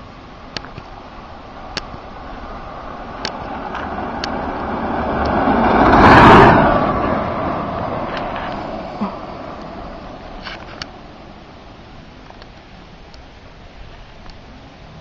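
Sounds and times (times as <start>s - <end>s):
electric scooter passing: 0.0s - 15.0s.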